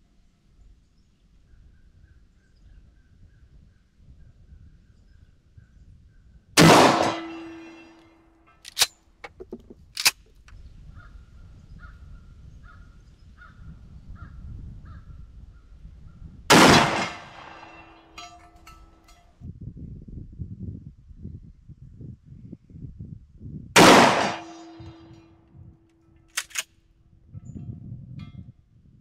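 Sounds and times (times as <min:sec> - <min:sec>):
shotgun shots: 0:06.6 - 0:08.0, 0:16.5 - 0:18.3, 0:23.8 - 0:25.1.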